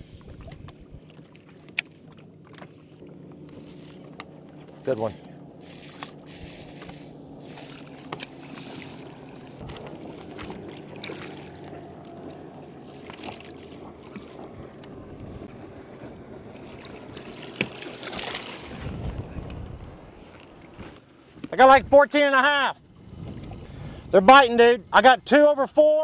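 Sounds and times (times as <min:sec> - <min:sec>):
wind on microphone: 0:00.0 - 0:01.1, 0:13.8 - 0:17.3, 0:18.6 - 0:22.0, 0:22.9 - 0:25.0
water lapping against boat hull: 0:00.0 - 0:24.0
water rush: 0:00.0 - 0:26.0.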